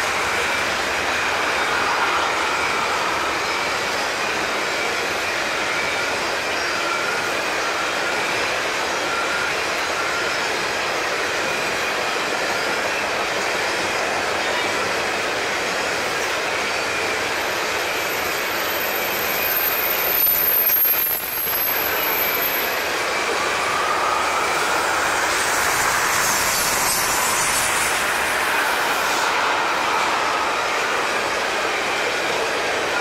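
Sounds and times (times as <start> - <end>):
train wheels rumbling on rail: 0.0 - 33.0
high wheel squeal: 16.6 - 33.0.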